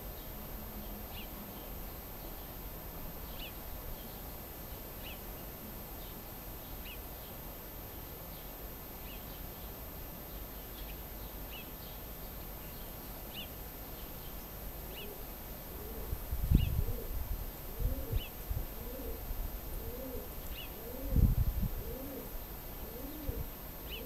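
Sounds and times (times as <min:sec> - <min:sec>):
small bird chirping: 0:12.6 - 0:15.1
pigeon cooing: 0:15.8 - 0:24.0.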